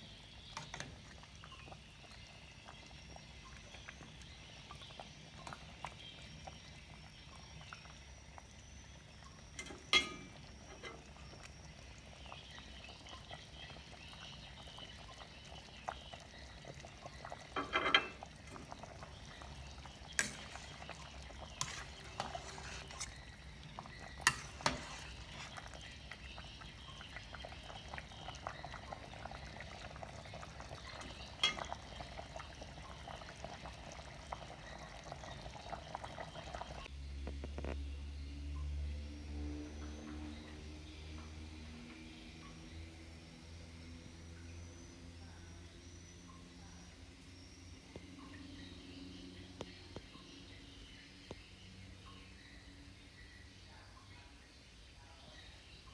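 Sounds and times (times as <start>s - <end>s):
stew bubbling in a pot: 0.0s - 55.9s
ladle clinking against pot: 9.6s - 11.0s, 17.5s - 18.2s.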